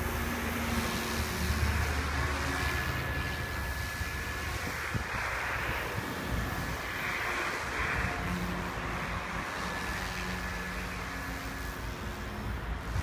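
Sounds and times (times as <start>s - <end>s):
electric motor whine: 0.0s - 13.0s
rc helicopter rotor whoosh: 0.0s - 13.0s.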